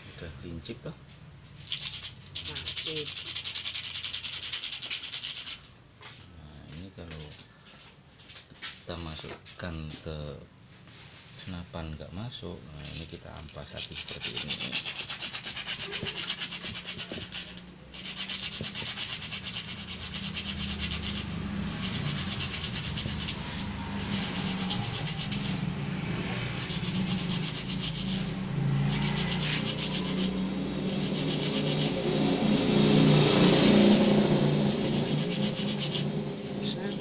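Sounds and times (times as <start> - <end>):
metal dart scraping on sandpaper: 13.5 - 25.7, 26.3 - 33.0, 33.6 - 36.9.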